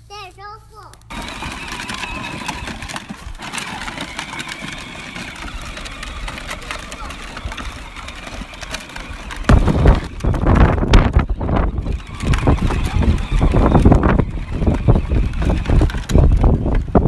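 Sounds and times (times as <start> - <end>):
electric toy tractor whine: 1.1 - 17.0
low rumbling with knocks: 9.3 - 17.0.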